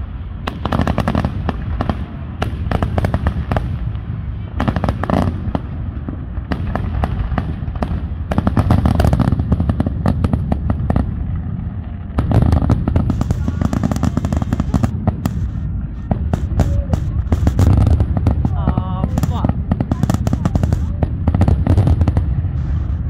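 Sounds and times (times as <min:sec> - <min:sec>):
fireworks booming bursts: 0:00.0 - 0:23.0
rapid crackling pops: 0:06.4 - 0:23.0.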